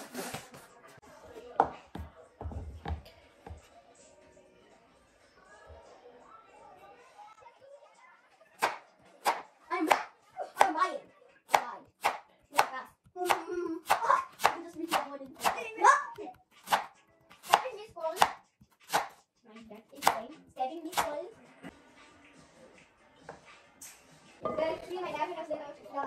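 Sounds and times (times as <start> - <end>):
knife chopping on wooden board: 11.5 - 15.6, 16.6 - 19.2, 20.0 - 20.2.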